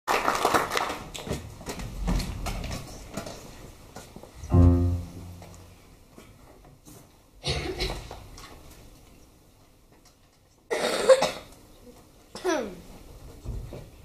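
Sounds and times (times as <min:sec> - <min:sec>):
scattered clapping: 0:00.1 - 0:01.4
electric piano low note: 0:04.5 - 0:05.9.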